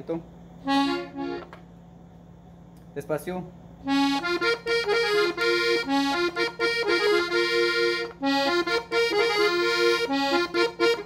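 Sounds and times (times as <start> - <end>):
accordion melody: 0.6 - 1.7, 3.8 - 11.0.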